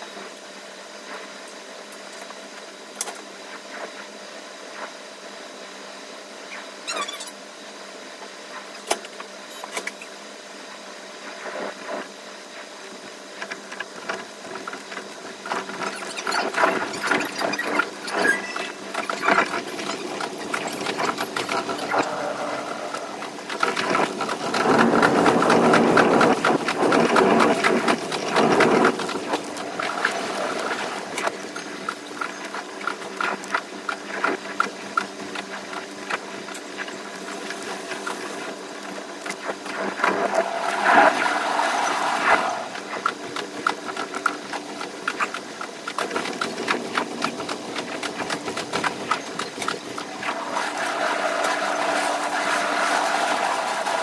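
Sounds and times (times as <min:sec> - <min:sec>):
train wheel squeal: 0:15.9 - 0:23.0
train wheel clicks on rails: 0:22.9 - 0:30.5, 0:42.8 - 0:50.1.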